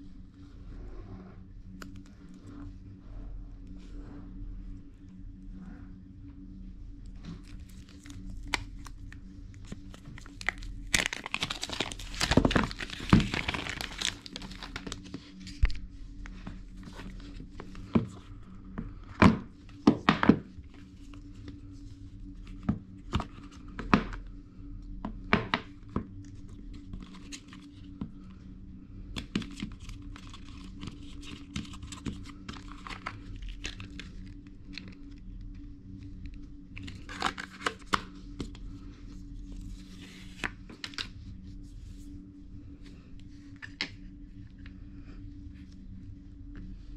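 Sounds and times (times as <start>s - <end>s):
wrapping tearing and crinkling: 7.4s - 15.8s, 29.2s - 35.0s, 36.8s - 38.1s
paper packaging rustling: 9.6s - 15.8s, 29.2s - 34.9s, 36.8s - 38.1s.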